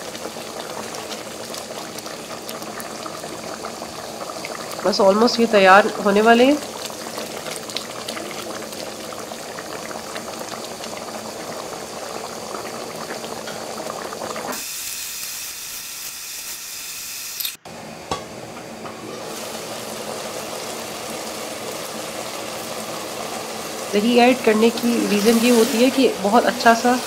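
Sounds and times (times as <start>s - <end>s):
pot of rice boiling: 0.0s - 15.2s, 17.7s - 27.0s
bright hiss: 14.4s - 17.6s, 23.9s - 27.0s.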